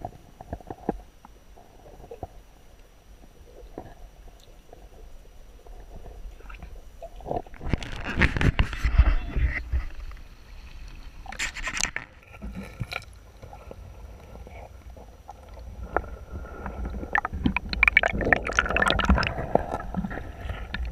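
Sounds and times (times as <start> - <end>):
sharp clicks and knocks underwater: 0.0 - 2.9, 5.6 - 10.3, 11.3 - 13.8, 14.8 - 20.9
underwater river gurgling: 0.0 - 20.9
water splash: 17.1 - 19.8.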